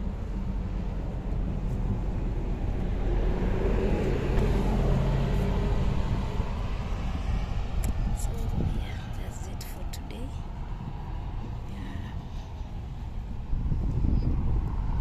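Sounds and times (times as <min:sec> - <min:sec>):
low rumble: 0:00.0 - 0:15.0
vehicle passing: 0:00.0 - 0:15.0.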